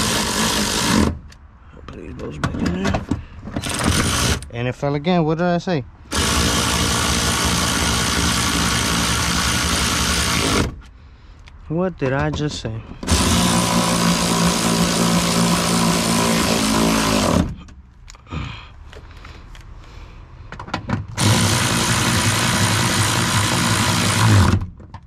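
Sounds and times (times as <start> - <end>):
cordless power tool driving bolts: 0.0 - 1.4, 2.6 - 4.5, 6.1 - 10.9, 13.0 - 17.6, 20.8 - 25.0.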